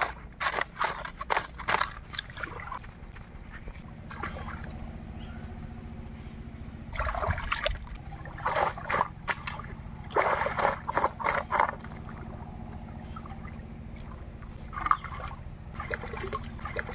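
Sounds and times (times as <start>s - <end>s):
water splashing in a basin: 4.1s - 4.7s, 6.9s - 12.3s, 13.2s - 16.9s.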